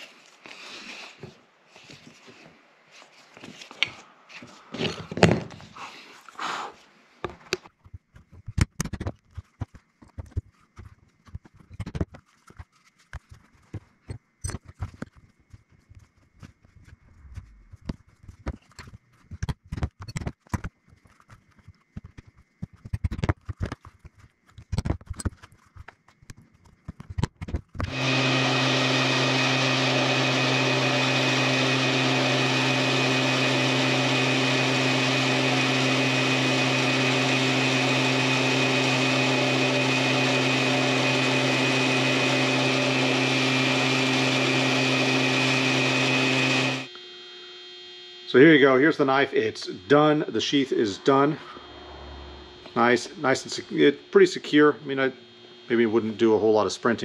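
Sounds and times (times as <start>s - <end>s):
belt sander running: 27.6s - 57.0s.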